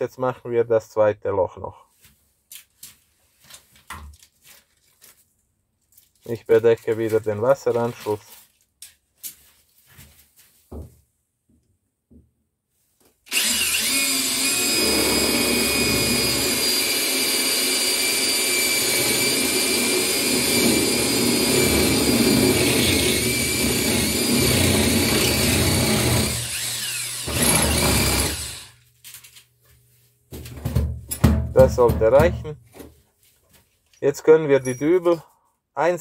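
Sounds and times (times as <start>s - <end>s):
hammer drill whining into tile: 13.3s - 28.8s.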